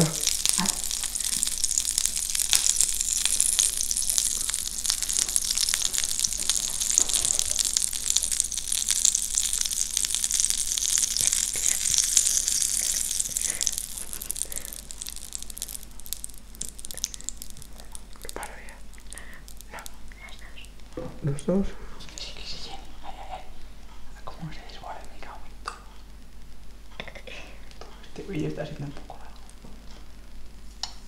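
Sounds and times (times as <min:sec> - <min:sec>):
batter sizzling on waffle iron: 0:00.0 - 0:19.9.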